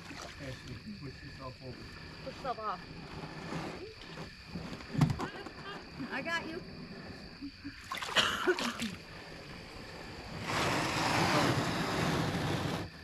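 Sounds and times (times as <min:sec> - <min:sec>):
canoe hull scraping on shore: 0:00.0 - 0:06.0, 0:09.6 - 0:13.0.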